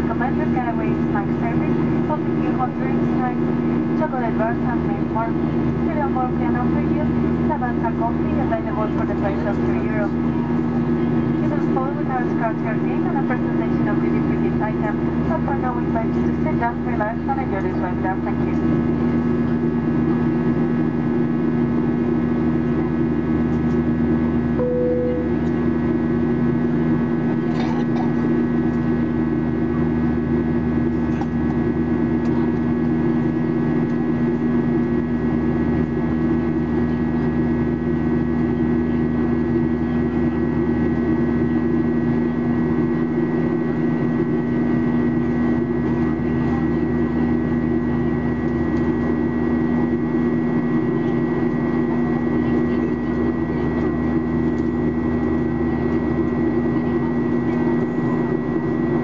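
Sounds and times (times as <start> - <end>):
airplane cabin drone: 0.0 - 59.0
thin high whine: 24.6 - 25.6.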